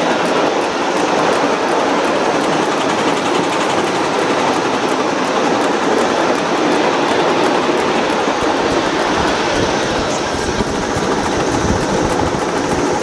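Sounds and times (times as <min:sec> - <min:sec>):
train wheels clattering on rails: 0:00.0 - 0:13.0.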